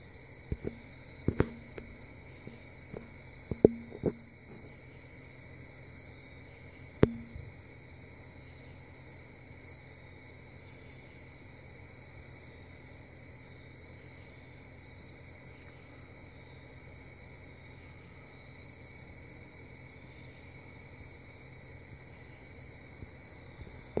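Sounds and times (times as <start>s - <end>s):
crickets chirping: 0.0s - 24.0s
low constant hum: 0.0s - 24.0s.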